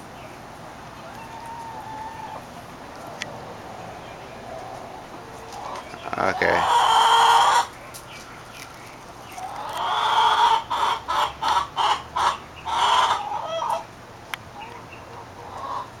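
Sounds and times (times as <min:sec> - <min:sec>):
hen clucking: 0:01.0 - 0:13.9, 0:14.6 - 0:16.0
hen squawking: 0:05.6 - 0:07.7.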